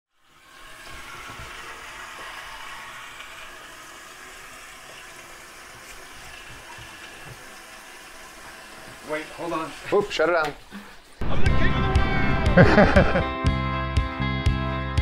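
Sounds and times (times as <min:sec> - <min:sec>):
water rushing from pipe: 0:00.1 - 0:11.2.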